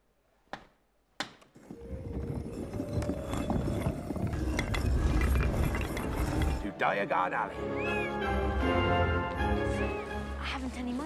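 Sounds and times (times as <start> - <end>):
bricks clattering and grinding: 1.2 - 6.8.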